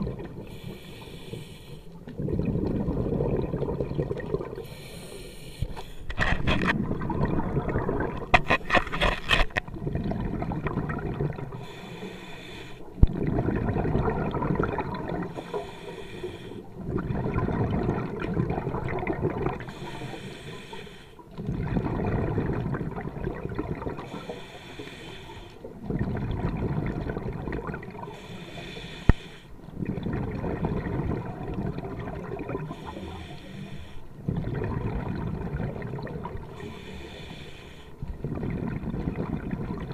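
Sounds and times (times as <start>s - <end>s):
exhaled bubbles rushing: 0.0s - 0.6s, 2.0s - 4.7s, 6.4s - 8.5s, 9.6s - 11.7s, 13.0s - 15.5s, 16.7s - 19.8s, 21.3s - 24.3s, 25.6s - 28.2s, 29.7s - 32.8s, 34.2s - 36.6s, 38.1s - 39.9s
regulator inhale hiss: 0.4s - 2.0s, 4.6s - 6.2s, 11.6s - 13.0s, 15.3s - 16.7s, 19.6s - 21.2s, 24.1s - 25.7s, 28.1s - 29.7s, 32.6s - 34.2s, 36.6s - 38.1s.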